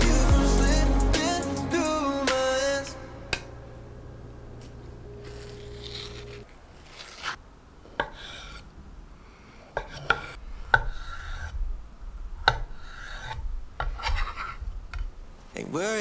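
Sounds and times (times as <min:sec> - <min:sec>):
knife slicing avocado: 0:05.2 - 0:07.4.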